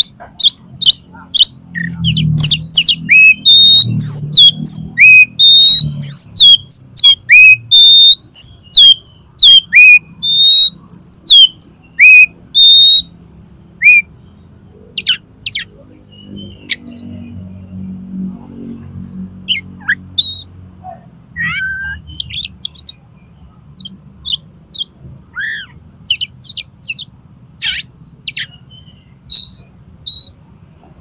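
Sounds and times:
bird singing whistled notes: 0.0s - 14.4s, 19.5s - 20.6s, 21.4s - 30.4s.

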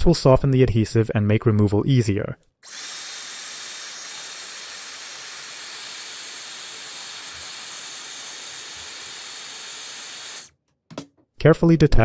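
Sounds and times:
hairdryer blowing: 2.6s - 10.5s.

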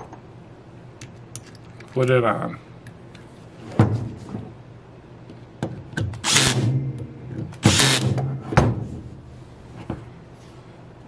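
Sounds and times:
electric screwdriver running: 6.3s - 6.6s.

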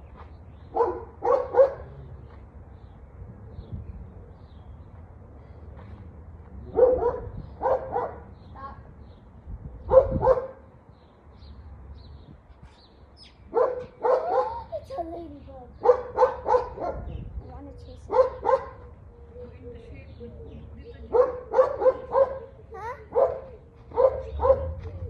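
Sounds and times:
dog barking: 0.7s - 2.0s, 6.7s - 8.3s, 9.9s - 10.6s, 13.5s - 14.7s, 15.8s - 17.2s, 18.1s - 18.9s, 21.1s - 25.0s.

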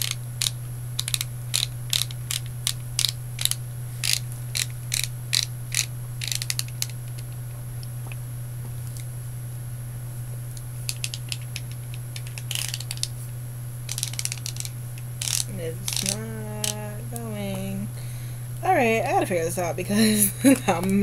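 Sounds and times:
twist-up highlighter ratcheting clicks: 0.0s - 7.3s, 10.9s - 13.1s, 13.9s - 16.9s
steady low hum: 0.0s - 21.0s.

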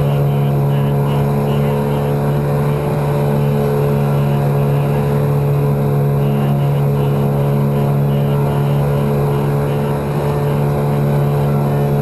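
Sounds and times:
outboard motor running: 0.0s - 12.0s.

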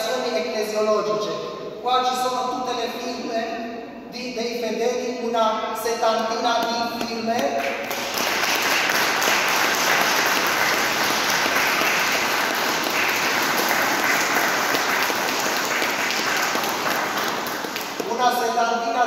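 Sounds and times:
congregation applauding: 7.5s - 18.4s.

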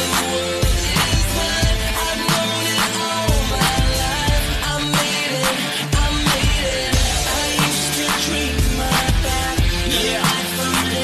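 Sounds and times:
hip hop drum beat: 0.0s - 11.0s
held bass notes: 6.0s - 10.2s.

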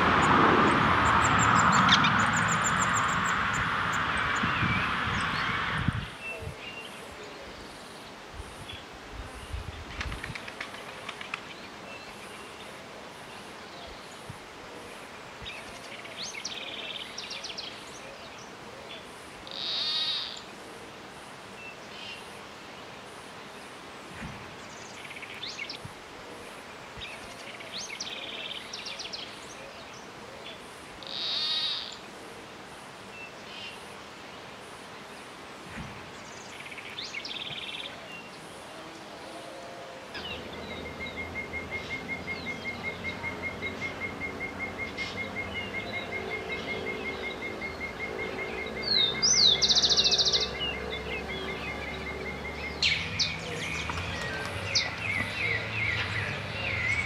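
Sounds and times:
background hiss: 0.0s - 42.7s
bird chirps and calls: 40.2s - 57.0s.

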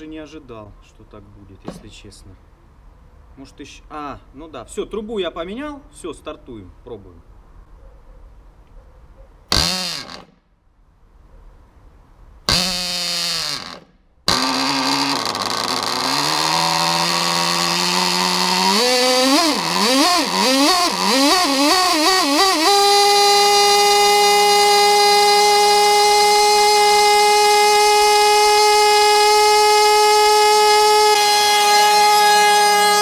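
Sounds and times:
model engine high-pitched whine: 9.5s - 10.4s, 12.5s - 33.0s.

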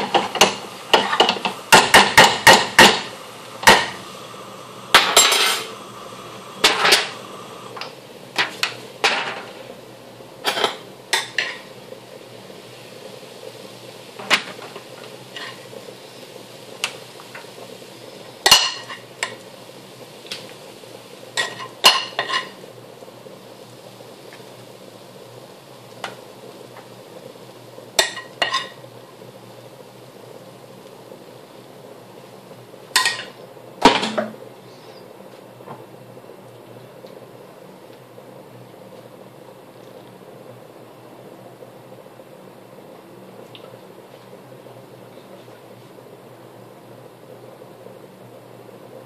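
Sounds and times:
metal spoon clanking on pan: 33.0s - 33.3s.

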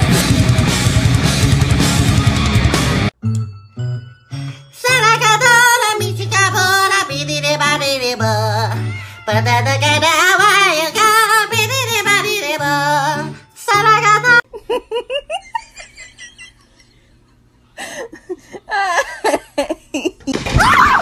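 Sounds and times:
steady bass line: 0.0s - 4.0s
person singing: 4.4s - 14.4s
person laughing: 14.5s - 20.5s.

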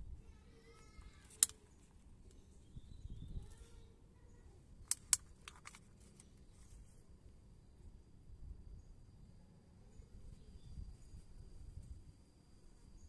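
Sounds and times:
sharp clicks: 1.3s - 2.4s, 4.8s - 6.3s
hand handling plastic bottles: 4.9s - 6.9s.

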